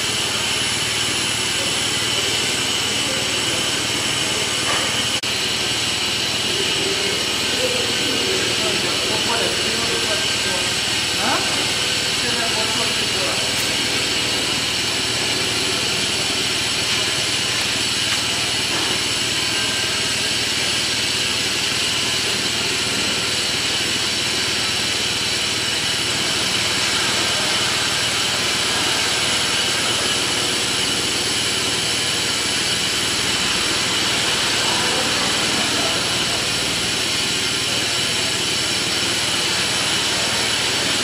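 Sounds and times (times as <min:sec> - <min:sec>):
high-pitched machine whines: 0:00.0 - 0:41.0
machine hum and hiss: 0:00.0 - 0:41.0.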